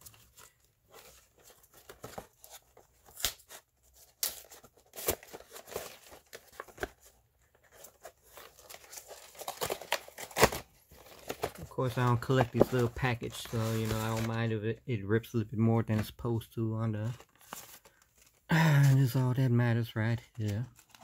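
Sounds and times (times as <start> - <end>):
packaging rustling and tearing: 0.0 - 14.4, 20.3 - 21.0.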